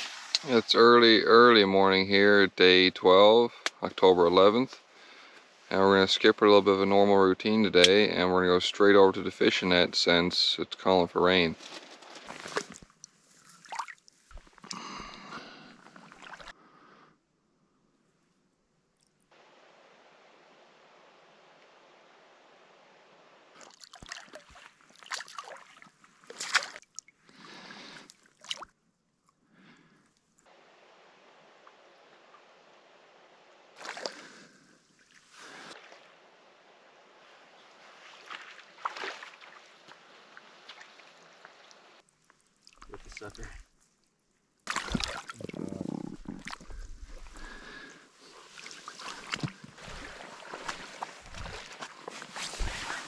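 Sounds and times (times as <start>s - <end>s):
clicks and rustles of net: 11.6s - 12.9s
water splashing and sloshing: 11.6s - 14.7s, 15.8s - 16.6s, 23.4s - 27.4s, 28.0s - 28.8s, 33.7s - 36.4s, 37.1s - 53.0s.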